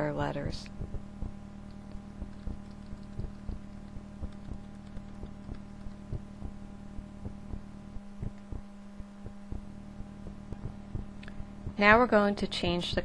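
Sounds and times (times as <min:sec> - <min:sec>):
steady electrical hum: 0:00.0 - 0:13.0
keyboard keys tapping: 0:01.7 - 0:06.3.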